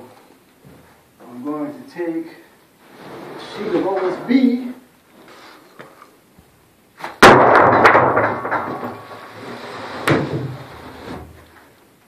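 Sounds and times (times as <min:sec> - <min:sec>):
wooden sheet smacking onto lumber: 0:07.0 - 0:09.2, 0:10.0 - 0:10.6.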